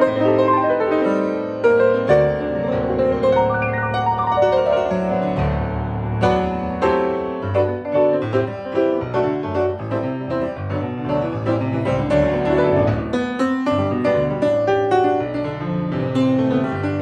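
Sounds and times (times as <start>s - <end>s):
grand piano playing: 0.0s - 17.0s.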